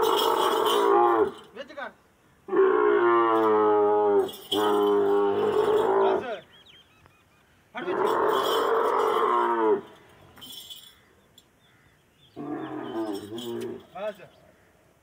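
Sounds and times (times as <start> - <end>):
camel bellowing: 0.0 - 1.5, 2.5 - 6.5, 7.8 - 10.2, 12.3 - 14.2
faint bird chirps: 6.3 - 7.7.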